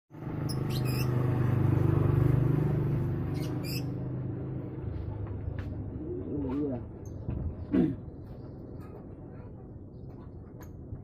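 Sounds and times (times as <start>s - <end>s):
lovebirds chirping: 0.4s - 1.3s, 3.3s - 4.0s.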